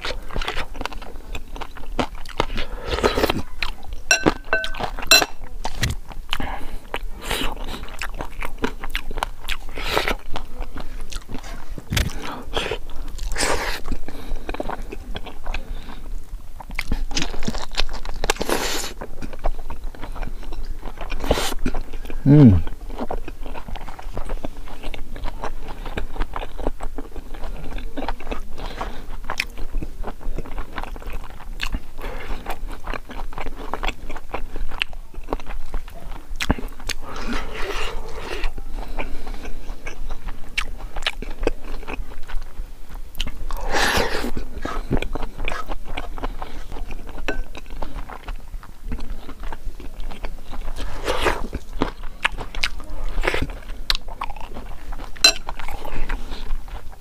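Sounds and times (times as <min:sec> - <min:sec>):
chewing crispy food: 0:00.0 - 0:57.0
mouth noises: 0:21.3 - 0:22.8.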